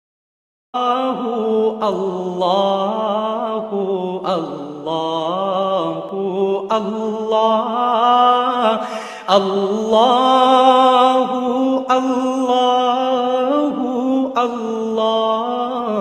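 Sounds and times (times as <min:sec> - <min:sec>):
person chanting: 0:00.8 - 0:16.0.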